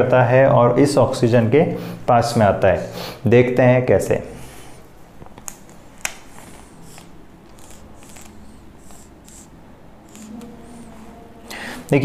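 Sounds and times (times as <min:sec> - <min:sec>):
marker scratching on whiteboard: 0:06.2 - 0:11.1.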